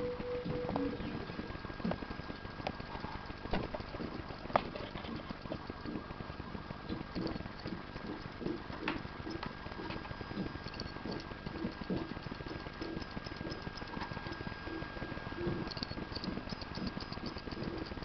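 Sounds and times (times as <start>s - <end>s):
faint steady tone: 0.0s - 1.6s
hard drive head ticking: 0.0s - 18.0s.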